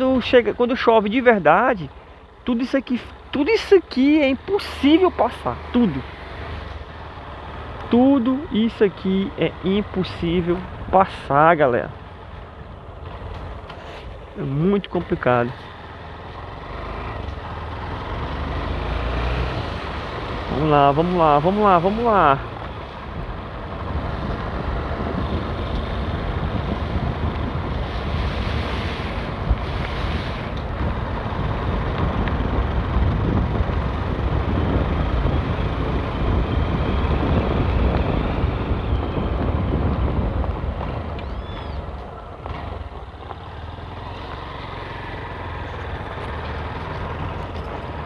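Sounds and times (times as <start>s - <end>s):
wind rushing over microphone: 18.7s - 48.0s
motorcycle engine running: 19.6s - 48.0s.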